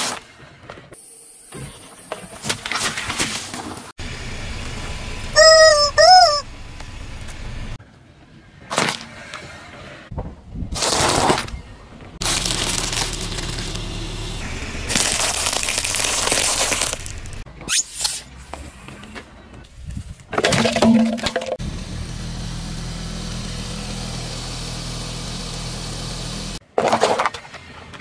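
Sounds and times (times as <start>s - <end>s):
peanut shells crackling: 12.2s - 13.9s, 14.8s - 17.4s
tyre crushing pepper: 14.9s - 17.4s.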